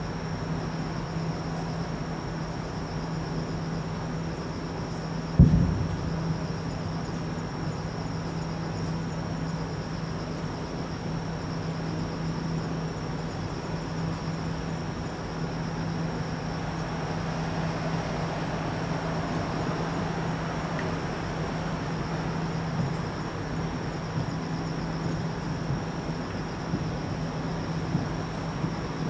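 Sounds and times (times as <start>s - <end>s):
distant city traffic: 0.0s - 29.0s
insects trilling: 0.0s - 29.0s
low hum: 5.4s - 7.5s.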